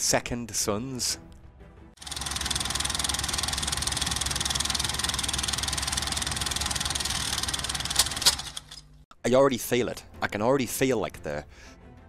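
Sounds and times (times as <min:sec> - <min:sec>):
film projector clattering: 0:02.0 - 0:09.0.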